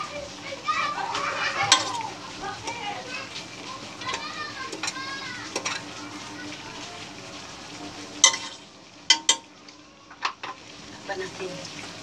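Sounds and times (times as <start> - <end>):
utensil stirring noodles in pot: 0.0 - 6.5, 7.7 - 9.5
metal clinks against pot: 8.2 - 9.4.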